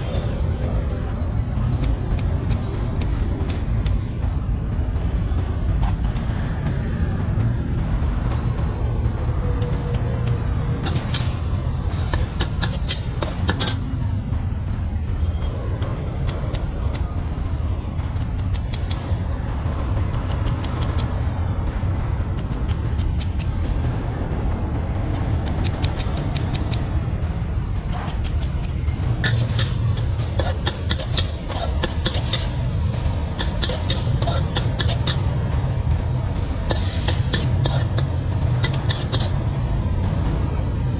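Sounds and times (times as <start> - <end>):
steady low rumble: 0.0 - 40.9
sharp clicks and taps: 1.7 - 4.4, 9.5 - 11.3, 15.7 - 17.2, 18.0 - 19.3, 20.0 - 24.0, 25.0 - 27.1, 27.7 - 39.5.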